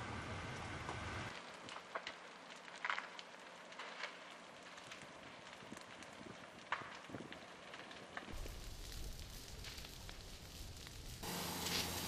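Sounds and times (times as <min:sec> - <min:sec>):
burning wood crackling and popping: 0:00.5 - 0:12.0
fire rushing noise: 0:03.3 - 0:12.0.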